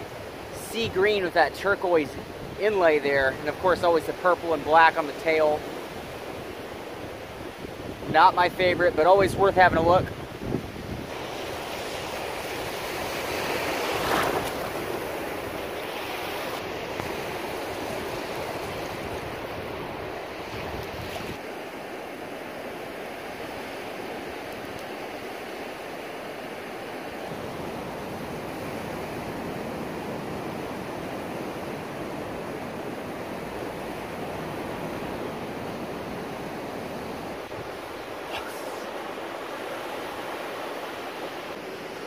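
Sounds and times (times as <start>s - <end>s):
surf washing onto beach: 0.0s - 42.0s
wind on microphone: 7.2s - 21.4s.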